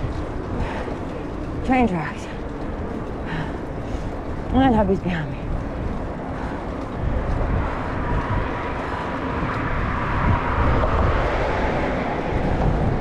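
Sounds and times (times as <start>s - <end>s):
passing road traffic: 0.0s - 13.0s
wind rumbling on microphone: 0.0s - 13.0s.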